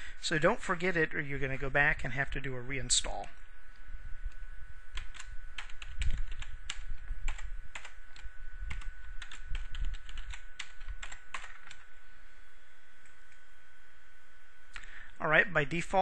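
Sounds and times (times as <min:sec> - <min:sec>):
keyboard keys clicking: 0:05.0 - 0:11.8.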